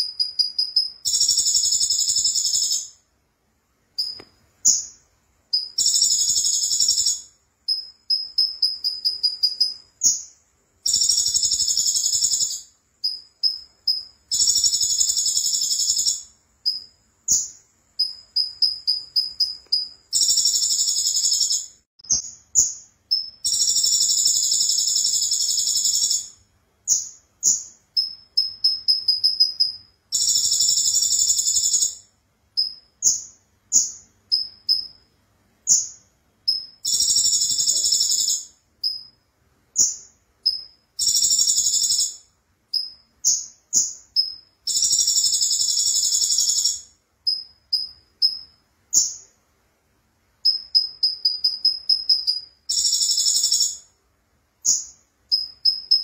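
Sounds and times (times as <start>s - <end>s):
bird chirps: 0.0s - 3.1s, 4.0s - 49.4s, 50.4s - 54.0s, 54.6s - 56.0s
bird singing high trills: 5.6s - 10.3s.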